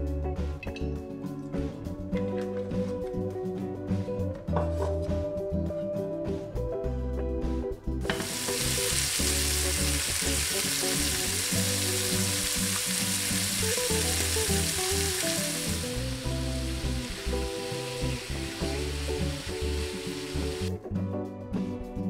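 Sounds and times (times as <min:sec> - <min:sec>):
background music: 0:00.0 - 0:22.0
chicken sizzling in hot oil: 0:08.1 - 0:20.7.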